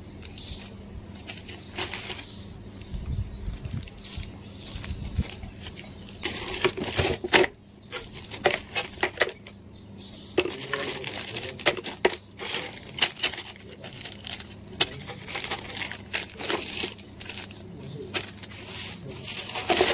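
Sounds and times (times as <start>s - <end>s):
plastic bags crinkling: 3.5s - 9.4s, 10.4s - 19.9s.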